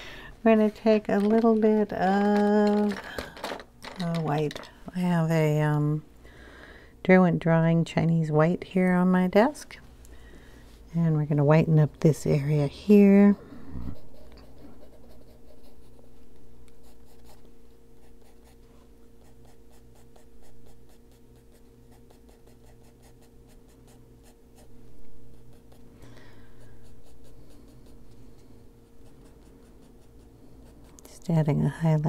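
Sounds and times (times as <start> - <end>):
faint steady hum: 0.0 - 32.0
pencil scratching on paper: 13.9 - 16.0, 19.2 - 25.9, 28.8 - 31.0.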